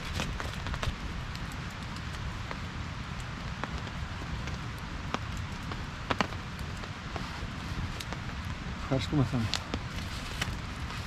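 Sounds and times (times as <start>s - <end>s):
rain pattering: 0.0s - 11.0s.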